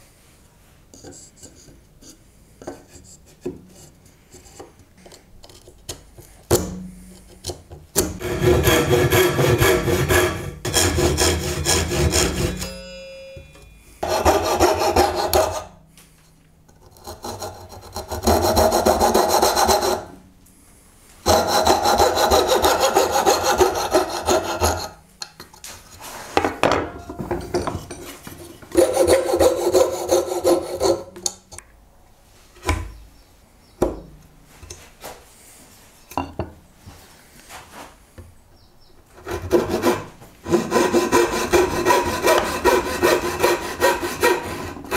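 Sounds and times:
handsaw cutting wood: 8.0s - 12.7s, 14.0s - 15.7s, 17.0s - 20.1s, 21.2s - 25.0s, 28.8s - 31.1s, 39.2s - 44.9s.

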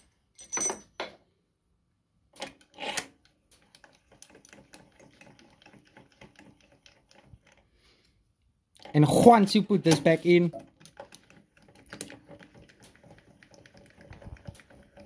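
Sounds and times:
rapid ticking of handwheel: 3.7s - 7.6s, 10.5s - 15.0s.

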